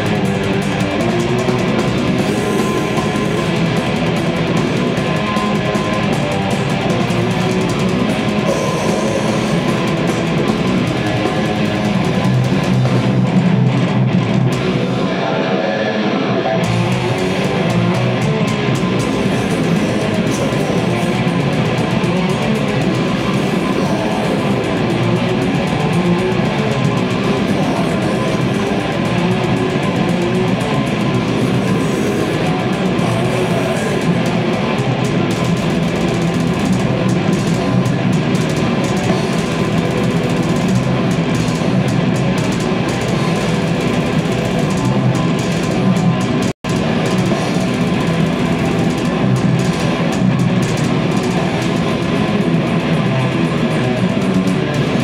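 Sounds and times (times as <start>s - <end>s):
distorted electric guitars: 0.0s - 55.0s
drum kit: 0.0s - 55.0s.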